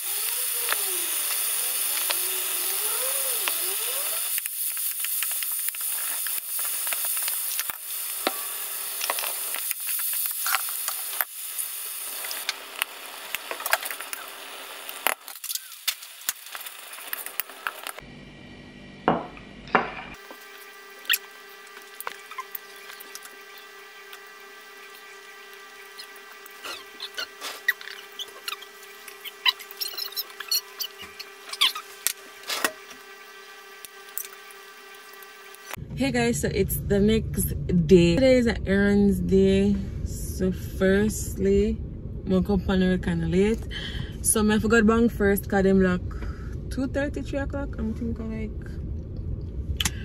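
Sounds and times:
food sizzling in frying pan: 0:00.0 - 0:18.0.

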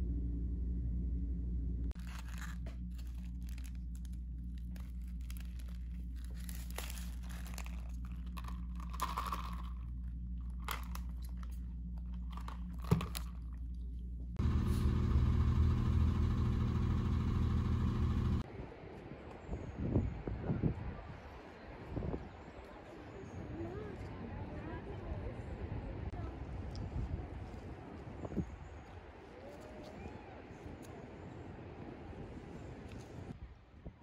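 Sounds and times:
loud low rumble: 0:00.0 - 0:02.0, 0:14.1 - 0:18.4
steady low hum: 0:00.0 - 0:18.9
paper wrapper crinkling: 0:02.0 - 0:09.9
food crunching: 0:02.0 - 0:14.1.

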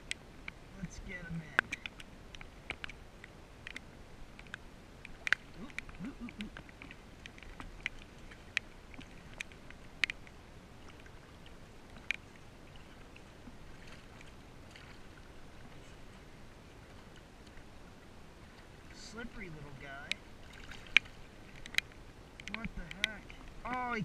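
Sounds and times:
sharp ticks: 0:20.9 - 0:24.0.

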